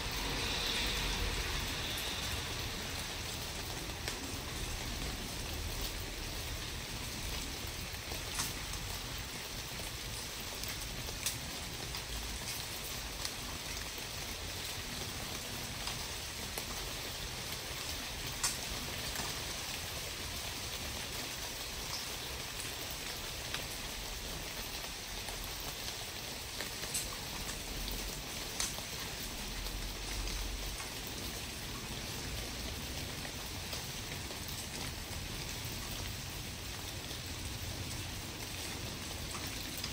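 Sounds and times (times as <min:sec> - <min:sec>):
steady outdoor hiss: 0:00.0 - 0:39.9
light ticks: 0:08.3 - 0:08.7, 0:18.4 - 0:18.6, 0:26.6 - 0:27.6, 0:28.5 - 0:28.8.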